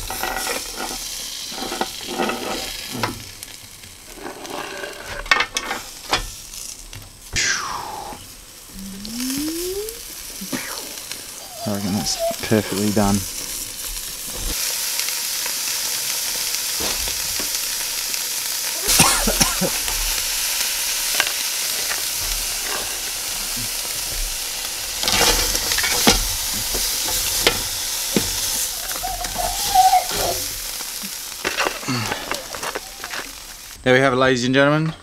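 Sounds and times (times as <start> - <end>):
lobster sizzling on grill plate: 0.0 - 33.9.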